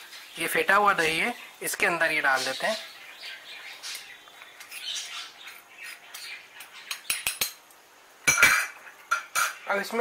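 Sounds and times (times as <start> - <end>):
knife scraping metal ladle: 4.6 - 6.3.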